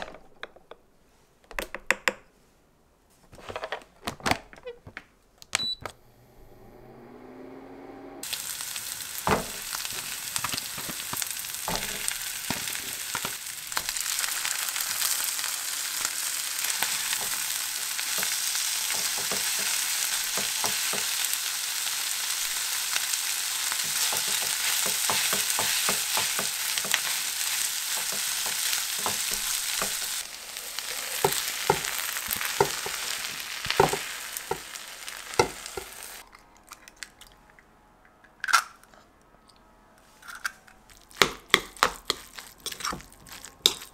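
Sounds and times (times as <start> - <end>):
food sizzling in a frying pan: 8.2 - 36.2
spatula tapping and scraping pan: 18.1 - 21.2, 23.8 - 30.2, 31.2 - 34.7, 35.4 - 35.9.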